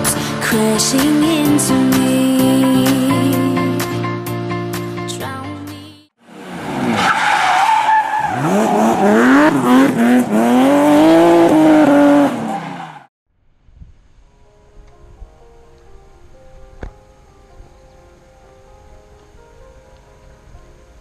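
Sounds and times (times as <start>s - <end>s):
car engine revving hard: 8.2s - 13.0s.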